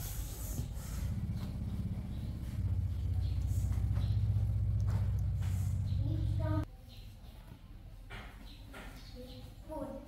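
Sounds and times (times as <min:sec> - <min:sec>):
motor rumble with fast flutter: 0:00.4 - 0:06.6.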